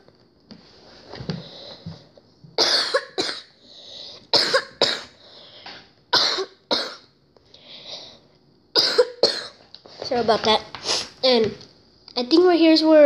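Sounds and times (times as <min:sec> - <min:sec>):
person coughing harshly: 0:02.6 - 0:03.6, 0:04.3 - 0:05.2, 0:06.1 - 0:07.1, 0:08.8 - 0:09.6
person breathing in: 0:03.6 - 0:04.2, 0:07.5 - 0:08.3.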